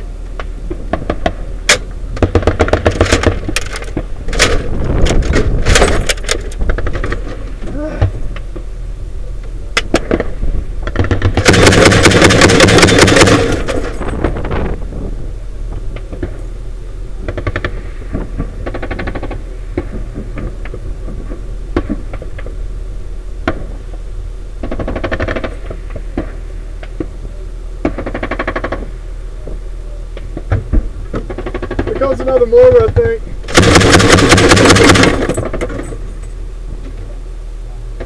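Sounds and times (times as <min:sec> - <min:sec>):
vehicle engine humming: 0:00.0 - 0:38.0
automatic gunfire: 0:11.0 - 0:14.0, 0:24.6 - 0:25.6, 0:33.5 - 0:35.8.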